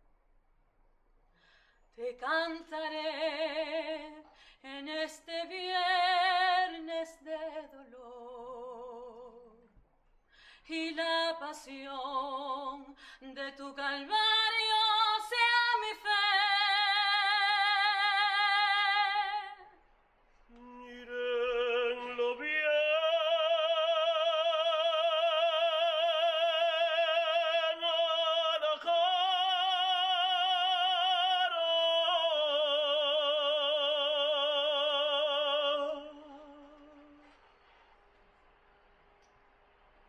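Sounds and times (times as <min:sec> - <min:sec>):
woman singing unaccompanied: 0:02.0 - 0:09.7, 0:10.7 - 0:19.7.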